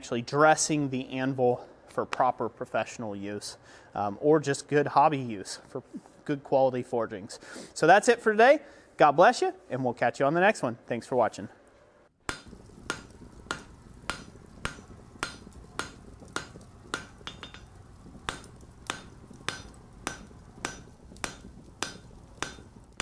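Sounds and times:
hammer striking steel on anvil: 12.3 - 22.7.

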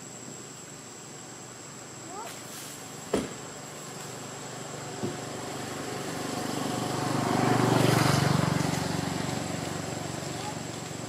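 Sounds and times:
vehicle passing by: 3.8 - 11.0.

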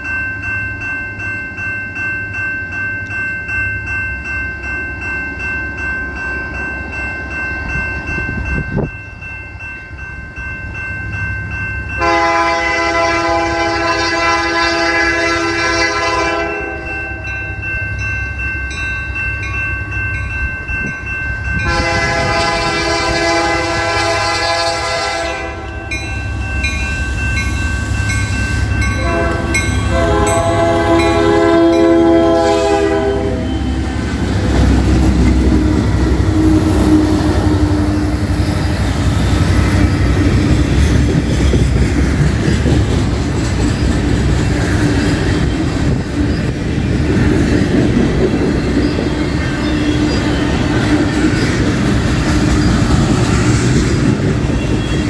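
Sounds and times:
train rumble: 4.3 - 55.0
locomotive air horn blasts: 12.0 - 17.0, 21.6 - 25.9, 29.0 - 33.8, 36.2 - 38.3.

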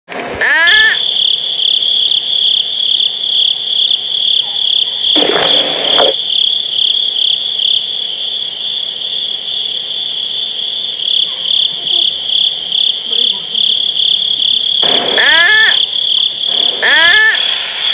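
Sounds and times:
crickets chirping: 0.4 - 17.9.

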